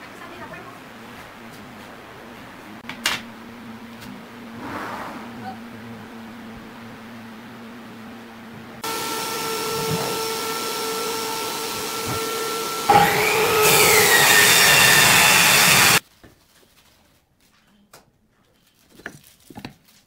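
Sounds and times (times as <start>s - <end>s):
faint steady hum: 0.0s - 9.9s
power tool whining: 8.8s - 16.0s.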